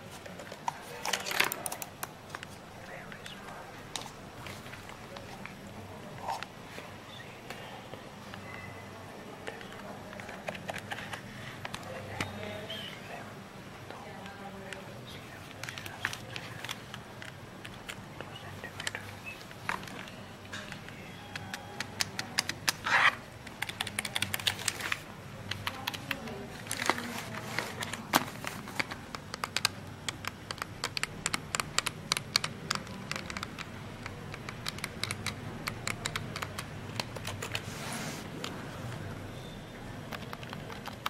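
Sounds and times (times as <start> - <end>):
keyboard key clicks: 28.8 - 37.6.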